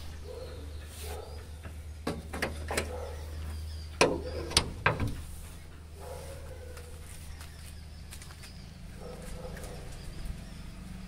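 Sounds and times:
sharp clicks and knocks: 1.6s - 3.0s, 4.0s - 5.2s.

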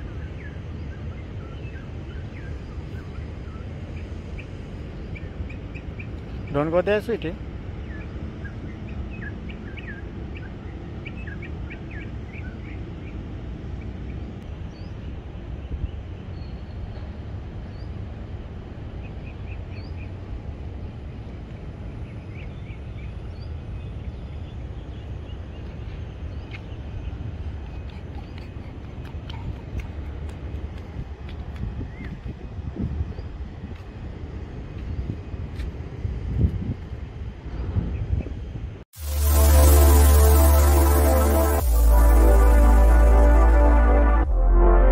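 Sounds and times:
low rumble: 39.0s - 44.9s.

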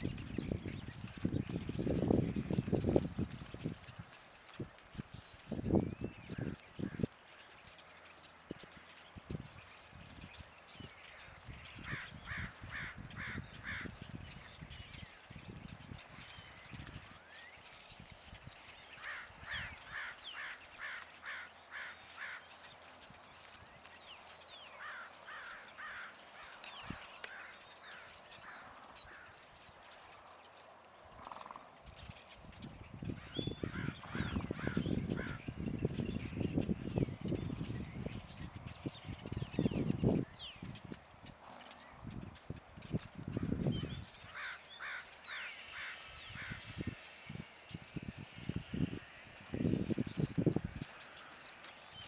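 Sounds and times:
small birds chirping: 0.0s - 52.0s
crow cawing: 19.0s - 22.4s, 24.8s - 26.6s, 44.3s - 46.6s.

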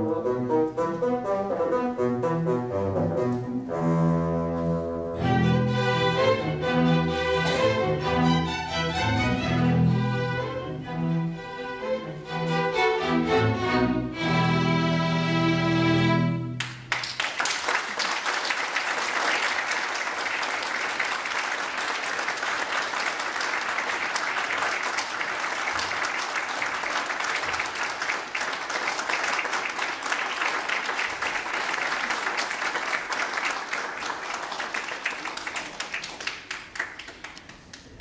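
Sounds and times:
audience applauding: 16.6s - 38.0s.

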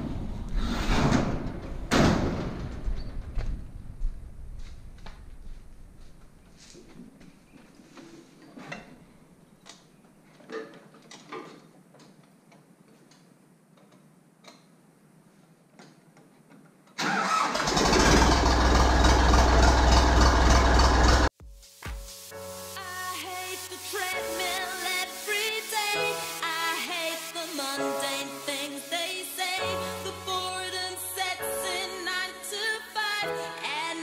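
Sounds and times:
tractor diesel engine running: 17.3s - 21.3s.

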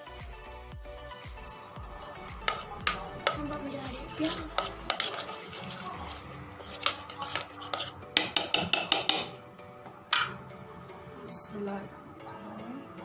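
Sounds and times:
metal spoon stirring batter: 2.1s - 9.5s
spoon clinking and scraping bowl: 2.4s - 9.4s.

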